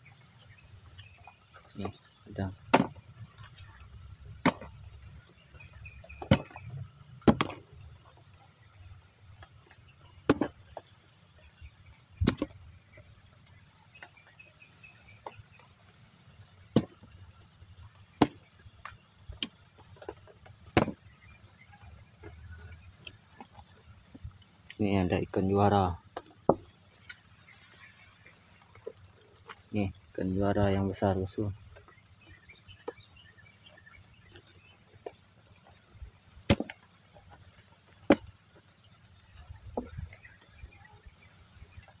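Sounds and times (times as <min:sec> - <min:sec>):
insects chirping in trills: 0:00.0 - 0:42.0.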